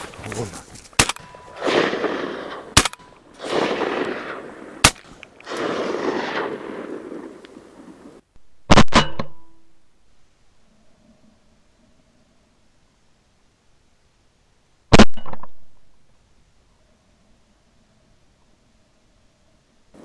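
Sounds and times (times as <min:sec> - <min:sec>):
rustling: 0:00.0 - 0:07.0
shotgun shots: 0:01.0 - 0:07.3, 0:08.6 - 0:09.5.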